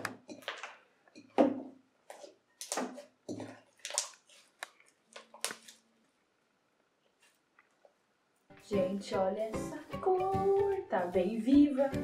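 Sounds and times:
slime squelching and popping: 2.6s - 5.8s.

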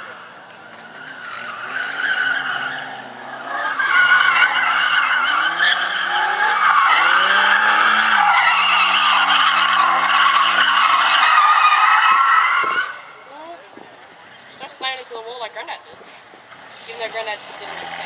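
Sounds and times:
car engine revving: 0.1s - 11.2s, 16.5s - 18.0s
tyre squeal: 0.7s - 13.1s.

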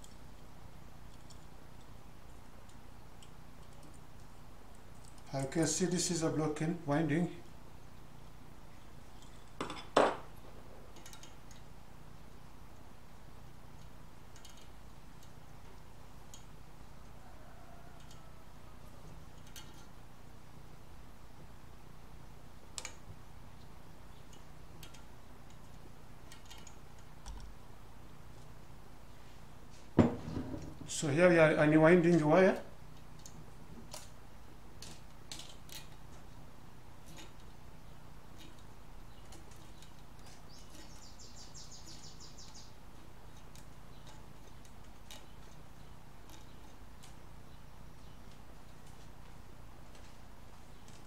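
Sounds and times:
faint steady hum: 0.0s - 51.0s
light clicks of handled parts: 1.1s - 5.6s, 8.8s - 10.0s, 10.9s - 11.7s, 13.7s - 17.2s, 17.9s - 18.3s, 18.9s - 20.0s, 22.7s - 27.6s, 32.0s - 34.2s, 34.8s - 41.2s, 41.9s - 51.0s.

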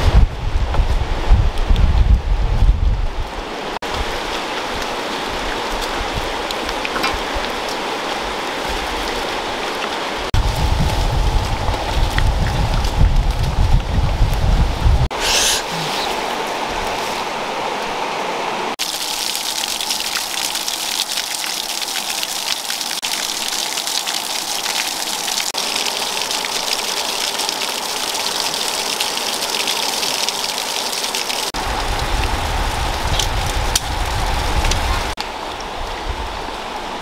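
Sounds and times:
small waterfall splashing on rocks: 3.8s - 14.0s, 18.8s - 37.0s
low rumble: 10.4s - 15.1s.

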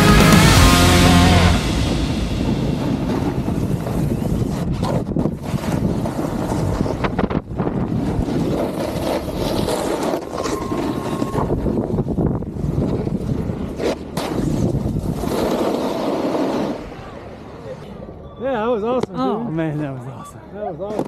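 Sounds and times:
snowboard scraping over snow: 0.0s - 17.0s
wind on microphone: 1.6s - 9.7s, 10.4s - 15.4s.

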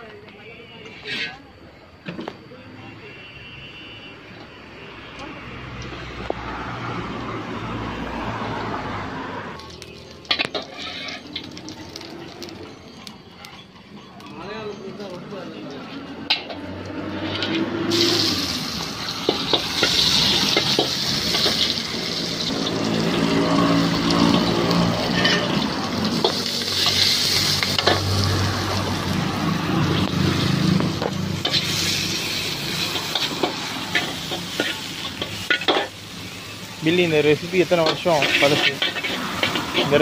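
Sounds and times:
metal ladle scraping wok: 0.9s - 1.5s, 10.2s - 11.8s, 16.2s - 40.0s
oil sizzling in a wok: 7.6s - 40.0s.

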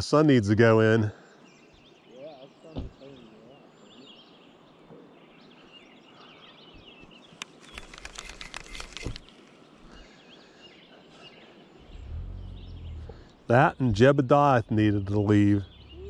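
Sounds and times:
small birds chirping: 0.1s - 16.0s
rapid clatter of clicks: 7.4s - 9.4s
low rumble: 11.8s - 14.0s, 14.6s - 16.0s.

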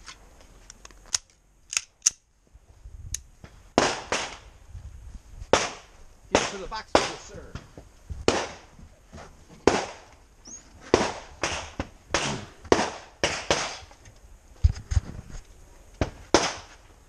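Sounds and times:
pistol shots with echo: 5.6s - 7.2s, 9.7s - 10.0s, 10.9s - 13.8s.

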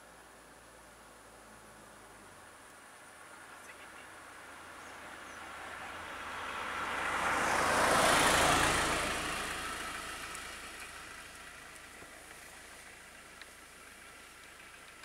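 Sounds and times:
van driving past: 4.2s - 15.0s.

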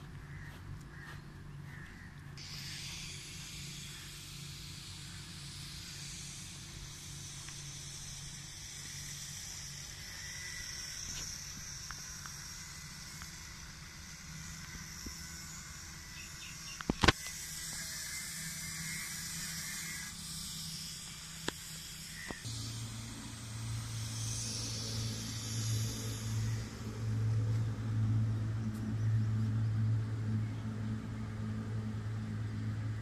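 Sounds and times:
steady high hiss: 2.3s - 33.0s
faint low hum: 22.1s - 33.0s.

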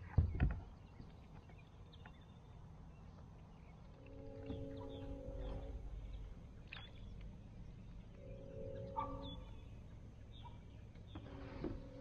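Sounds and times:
high bird chirps: 4.0s - 11.2s.

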